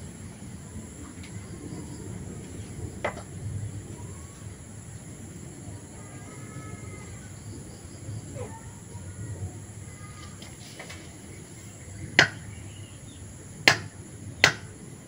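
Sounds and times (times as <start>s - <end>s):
low background noise: 0.0s - 15.0s.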